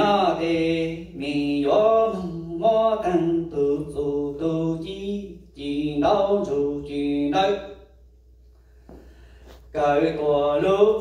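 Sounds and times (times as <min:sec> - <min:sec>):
man chanting into a microphone: 0:00.0 - 0:07.8.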